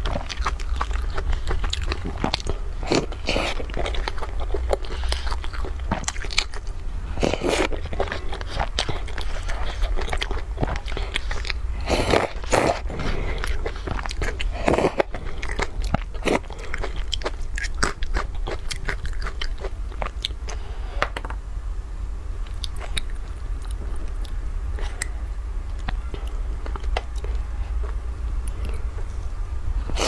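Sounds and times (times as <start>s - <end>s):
person slurping and chewing noodles: 0.0s - 20.8s
steady low hum: 0.0s - 30.0s.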